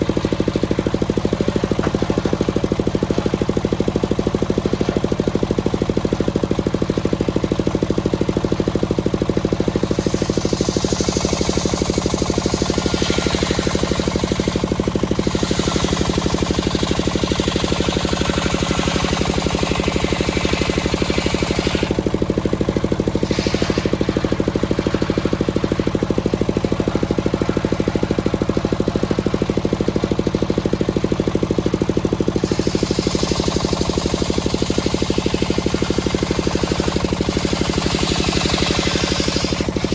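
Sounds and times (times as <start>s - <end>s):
sawmill engine pulsing: 0.0s - 39.9s
saw blade ripping through log: 9.8s - 22.2s, 23.1s - 26.2s, 32.4s - 39.9s.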